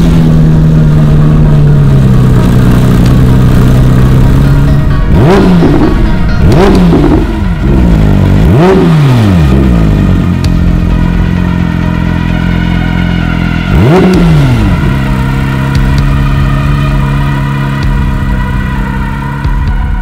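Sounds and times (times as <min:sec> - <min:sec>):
engine throttle blip: 0:00.0 - 0:12.5
sports car engine idling: 0:00.0 - 0:20.0.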